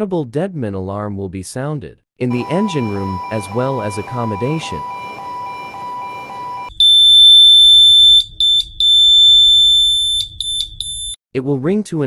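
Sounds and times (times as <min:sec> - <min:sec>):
low steady tone: 0:02.2 - 0:07.5
shrill alarm tone: 0:02.2 - 0:10.2
short alarm beeps: 0:02.3 - 0:11.2.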